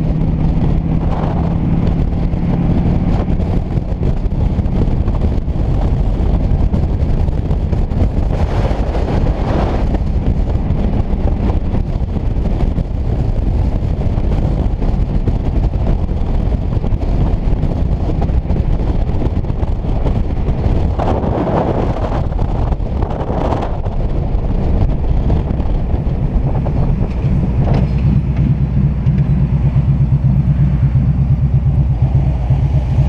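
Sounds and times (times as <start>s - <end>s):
motorcycle engine rumble: 0.0s - 33.0s
road noise: 0.0s - 33.0s
wind noise: 0.0s - 33.0s.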